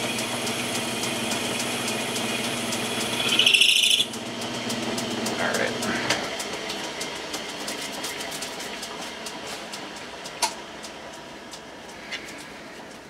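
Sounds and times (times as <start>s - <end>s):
metal lathe humming: 0.0s - 8.7s.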